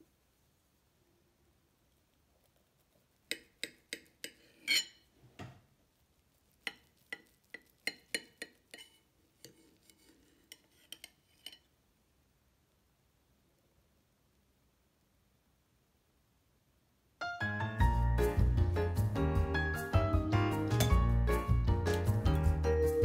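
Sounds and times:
knife and fork scraping a plate: 3.3 - 5.1, 6.6 - 11.7.

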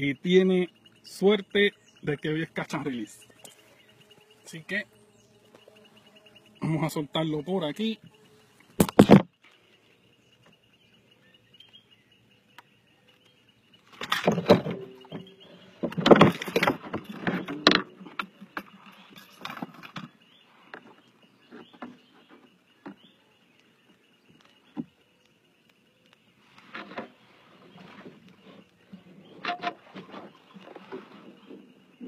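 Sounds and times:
faint high insect drone: 0.0 - 32.0
rustling and clatter close by: 13.9 - 23.0, 26.6 - 31.8.

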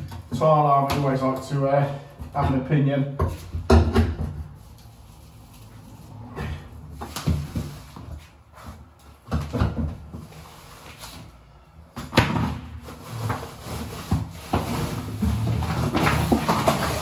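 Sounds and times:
knocks and scrapes on wall board: 2.2 - 4.7, 6.4 - 11.2, 12.0 - 17.0.

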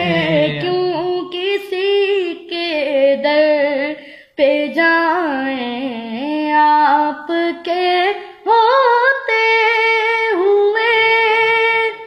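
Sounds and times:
boy singing unaccompanied: 0.0 - 12.0.

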